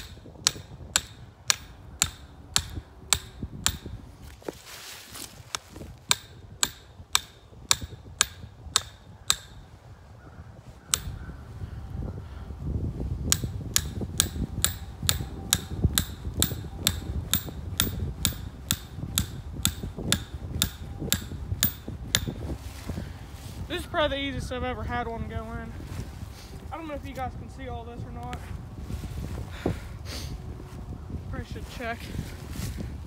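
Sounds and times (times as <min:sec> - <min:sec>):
hammer striking metal: 0:00.0 - 0:04.0, 0:06.1 - 0:09.7, 0:10.9 - 0:11.2, 0:13.3 - 0:22.4
low rumble: 0:11.2 - 0:23.7.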